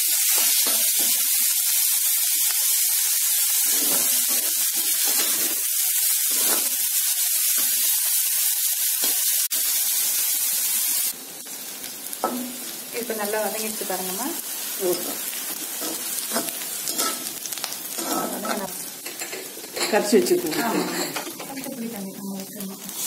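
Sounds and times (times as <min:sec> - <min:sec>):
food sizzling in hot oil: 0:00.0 - 0:23.0
ladle scraping pan: 0:15.8 - 0:17.3.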